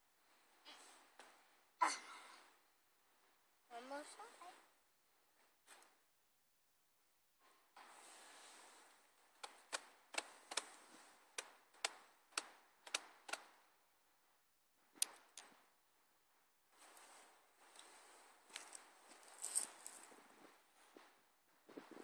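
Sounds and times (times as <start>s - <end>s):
footsteps on rock: 18.5s - 20.5s.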